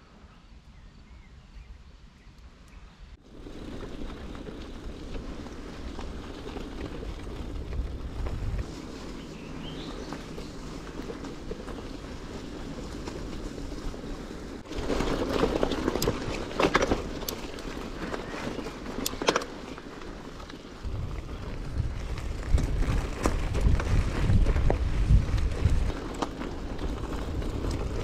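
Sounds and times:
bicycle tyres rolling: 0:03.2 - 0:28.0
wind buffeting microphone: 0:03.2 - 0:28.0
bike rattling clicks: 0:14.7 - 0:28.0.

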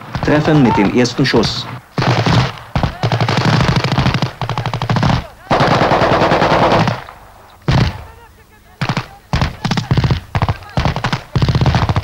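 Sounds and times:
machine gun automatic fire: 0:02.0 - 0:07.1, 0:08.8 - 0:12.0.

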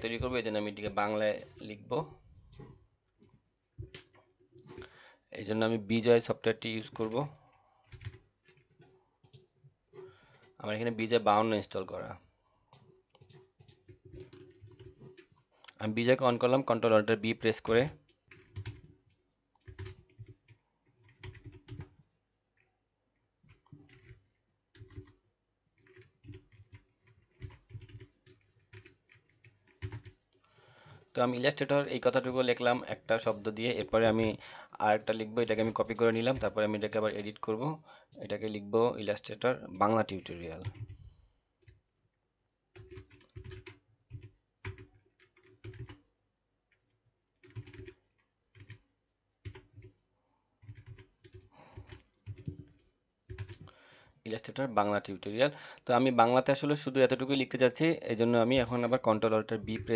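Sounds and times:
keyboard typing: 0:03.7 - 0:05.0, 0:06.8 - 0:10.6, 0:11.8 - 0:34.4, 0:35.0 - 0:37.7, 0:39.8 - 0:41.9, 0:42.7 - 0:46.1, 0:46.7 - 0:50.0, 0:50.6 - 0:53.8, 0:57.7 - 0:59.9.

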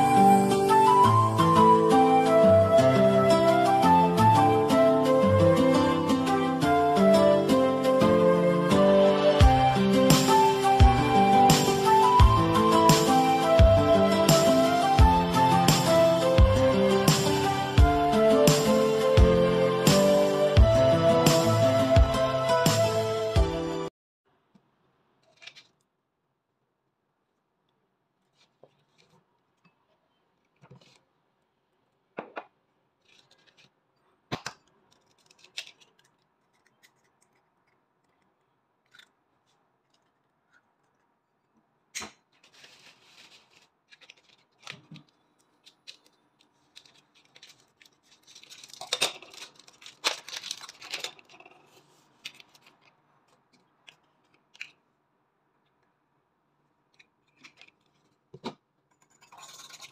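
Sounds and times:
crisp rustling and clicking: 0:33.0 - 0:41.6, 0:42.2 - 0:54.8, 0:56.9 - 0:58.2, 0:59.0 - 0:59.9.

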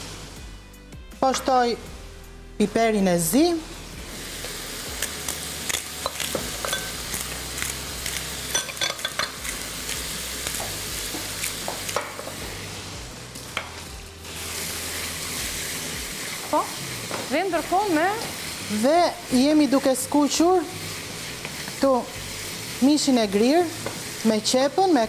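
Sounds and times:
meat sizzling in a frying pan: 0:02.7 - 0:25.0.

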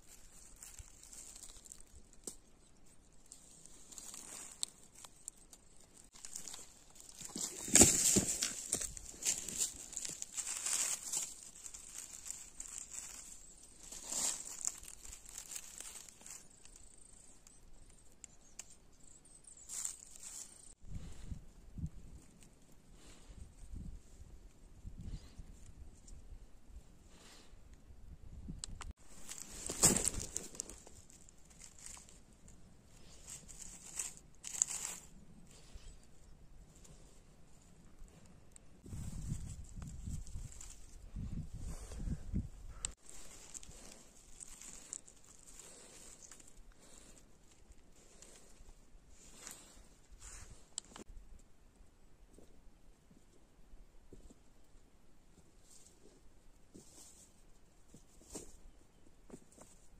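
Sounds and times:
dry leaves rustling: 0:00.0 - 0:02.3, 0:03.1 - 0:17.4, 0:19.6 - 0:20.7, 0:29.0 - 0:35.8, 0:38.8 - 0:42.0, 0:43.0 - 0:50.7.

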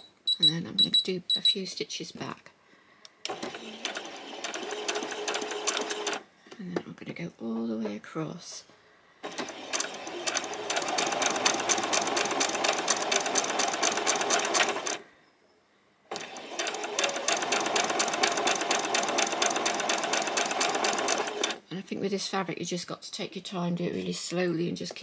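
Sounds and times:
sewing machine stitching: 0:03.3 - 0:06.2, 0:09.2 - 0:15.0, 0:16.1 - 0:21.6.

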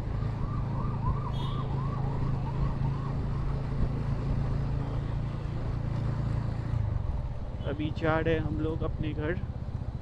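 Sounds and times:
wind and road noise: 0:00.0 - 0:10.0
siren yelping: 0:00.3 - 0:03.6.

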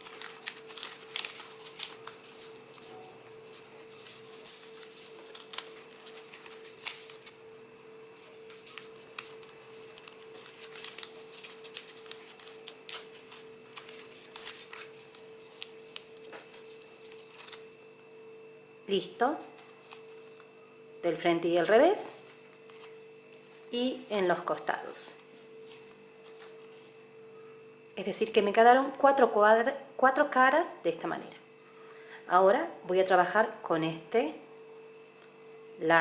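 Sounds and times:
paper rustling and crackling: 0:00.0 - 0:18.1, 0:19.4 - 0:20.5, 0:22.2 - 0:24.1, 0:25.2 - 0:27.0
faint steady hum: 0:00.0 - 0:36.0.

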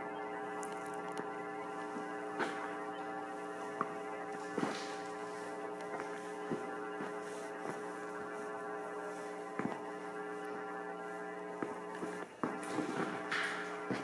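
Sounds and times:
steady electrical hum: 0:00.0 - 0:14.0.

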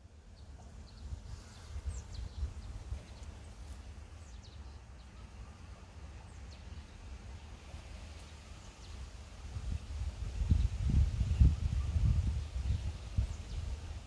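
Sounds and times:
small birds chirping: 0:00.0 - 0:09.4, 0:10.3 - 0:14.0
low rumble on microphone: 0:09.4 - 0:14.0.

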